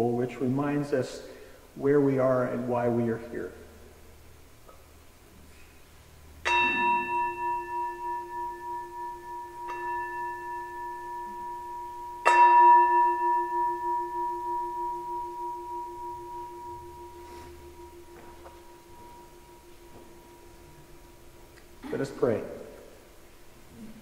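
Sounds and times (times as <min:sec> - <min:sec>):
singing bowl ringing: 0:06.4 - 0:21.6.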